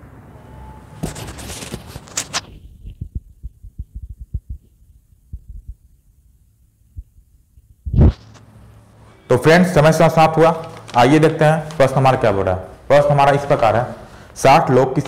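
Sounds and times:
dull low thumps: 2.6 - 6.0, 6.8 - 8.1.

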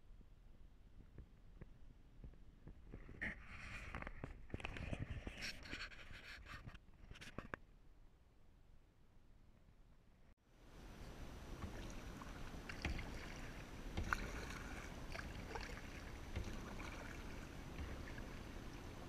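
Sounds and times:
paddle splashing in water: 11.0 - 19.0
water drips: 11.4 - 19.0
small knocks: 12.7 - 13.3, 13.9 - 18.2.

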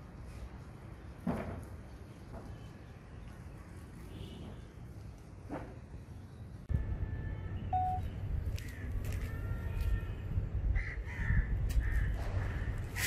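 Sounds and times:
crows cawing: 10.7 - 12.9.

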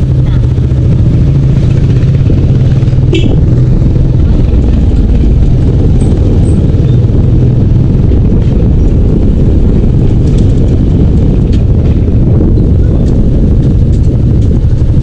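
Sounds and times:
motorcycle engine rumbling: 0.0 - 15.0.

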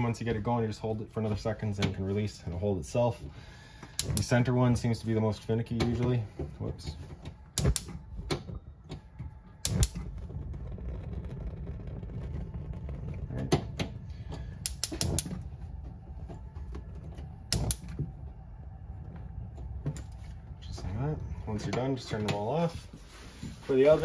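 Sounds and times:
steady low rumble: 0.0 - 24.0
gas igniter clicking: 3.8 - 4.6, 7.5 - 9.0, 9.6 - 10.2, 13.5 - 15.5, 17.5 - 18.2.

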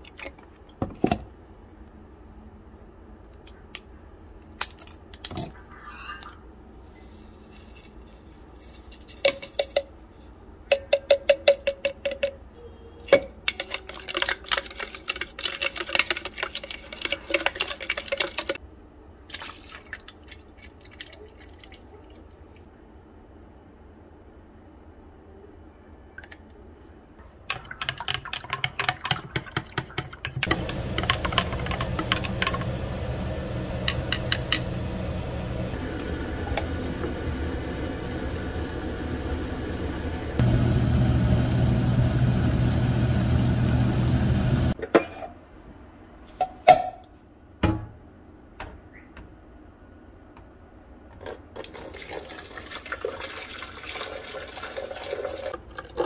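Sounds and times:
water running from a tap: 51.7 - 55.6.

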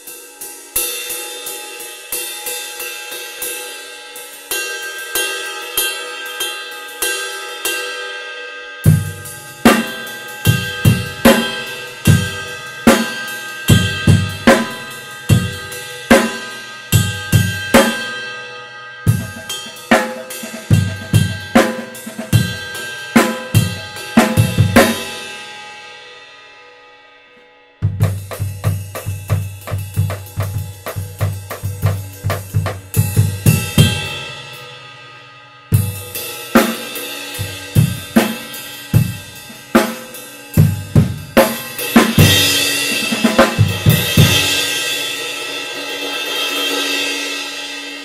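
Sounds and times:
ride cymbal struck with drumstick: 0.0 - 26.8, 27.8 - 48.0
bass drum and snare beat: 8.9 - 16.4, 19.1 - 25.1, 27.8 - 34.2, 36.6 - 44.7.

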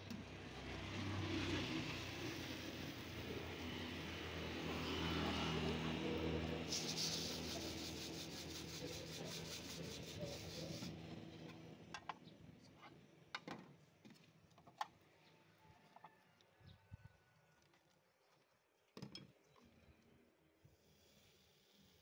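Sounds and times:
vehicle engine hum: 0.0 - 12.3.

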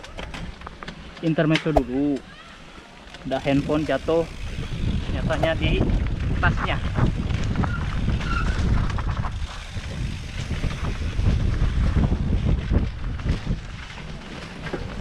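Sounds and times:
bike rattling over bumps: 0.0 - 15.0
tyres rumbling on dirt: 2.9 - 15.0
wind buffeting microphone: 3.4 - 15.0.

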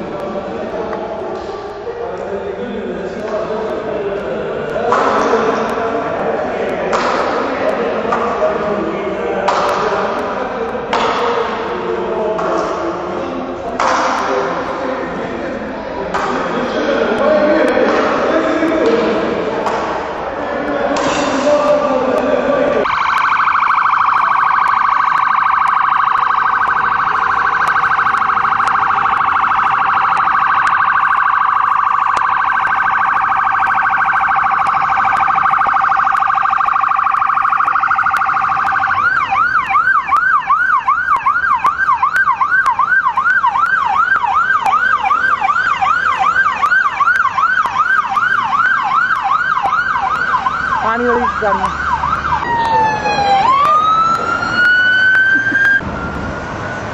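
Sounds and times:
electronic siren warbling and yelping: 22.8 - 55.9.

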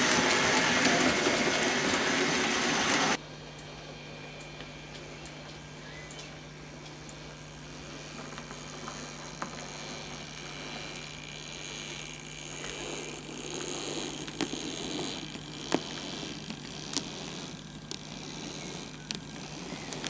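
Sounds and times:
model train rolling: 0.0 - 3.2, 7.6 - 20.0
wheels clicking over rail joints: 0.0 - 3.2, 8.1 - 20.0
steady electric hum: 0.0 - 20.0.

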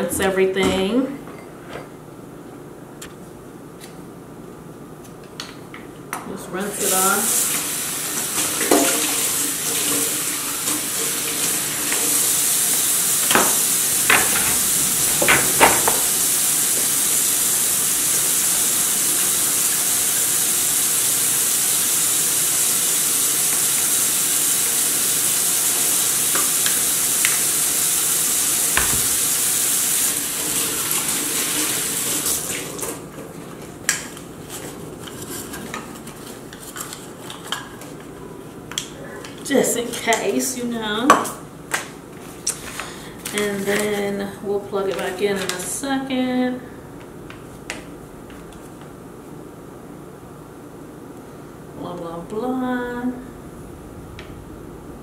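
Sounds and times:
tap running into metal sink: 13.2 - 16.2, 28.8 - 29.4
parts knocking against sink: 13.3 - 16.1, 28.8 - 29.2.

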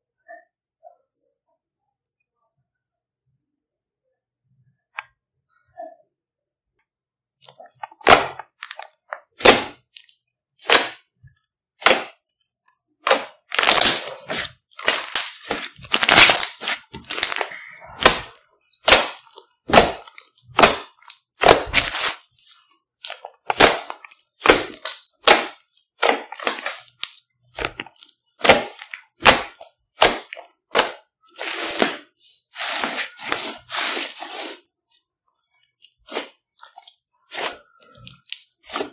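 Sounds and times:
slime popping and squelching: 7.4 - 11.2, 11.8 - 34.6, 35.7 - 38.9.

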